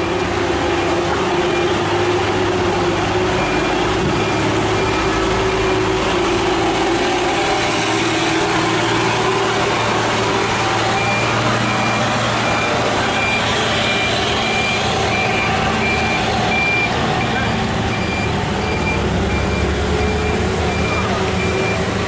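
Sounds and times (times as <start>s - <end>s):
diesel truck engine running: 0.0s - 22.0s
electronic warning beeps: 10.9s - 21.9s.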